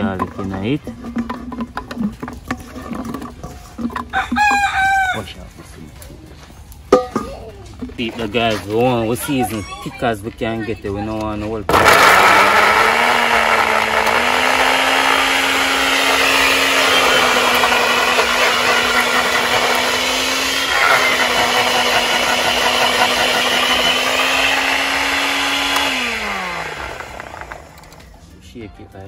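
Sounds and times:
blender motor running: 11.7s - 28.1s
blender spinning down whine: 11.7s - 28.1s.

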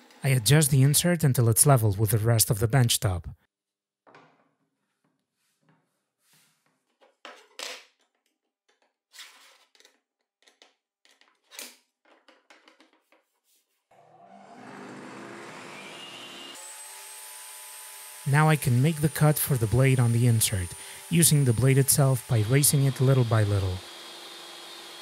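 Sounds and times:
small taps knocks and scrapes: 6.6s - 13.4s.

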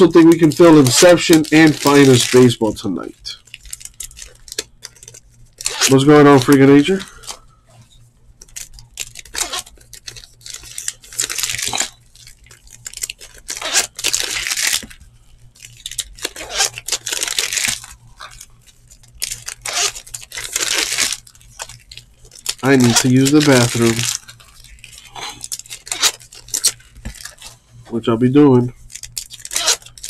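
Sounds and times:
cards rustling: 0.0s - 7.4s, 8.0s - 30.0s
wrapper tearing and crinkling: 0.0s - 7.4s, 8.4s - 27.6s, 28.5s - 30.0s.

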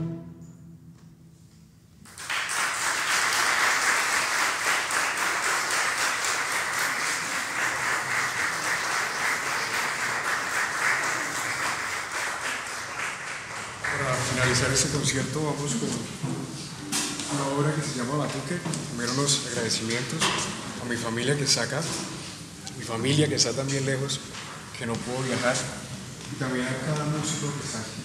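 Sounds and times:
audience applause: 2.1s - 15.0s.

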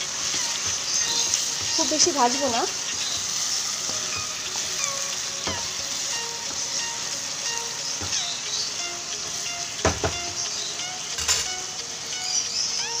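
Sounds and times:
food sizzling in hot oil: 0.0s - 13.0s
wooden spatula knocking pan: 0.2s - 4.6s, 5.4s - 5.8s, 8.0s - 8.2s, 9.3s - 10.4s.

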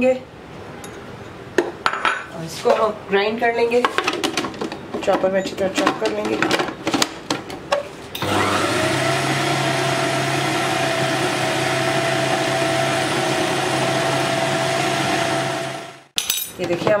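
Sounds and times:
food processor motor running: 8.2s - 16.1s.

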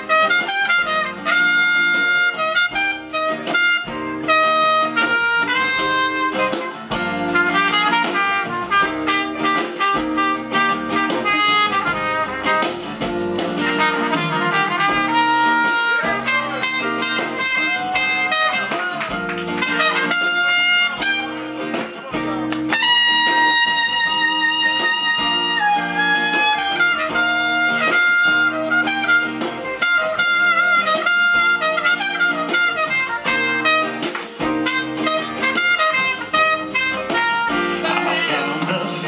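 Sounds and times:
trumpet solo: 0.0s - 21.8s, 22.7s - 38.6s
drums: 0.0s - 39.0s
guitar: 0.0s - 39.0s.

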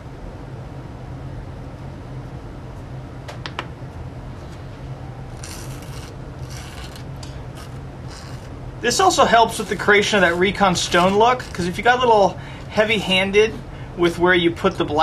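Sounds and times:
steady low hum: 0.0s - 15.0s
stick scraping on wooden board: 5.4s - 12.0s.

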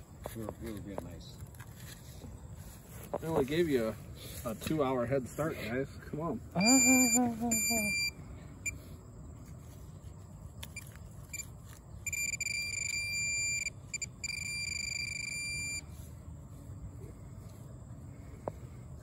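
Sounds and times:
metal detector beeps: 6.6s - 8.8s, 10.6s - 16.0s
metal detector high-pitched tones: 6.6s - 8.8s, 10.7s - 16.0s.

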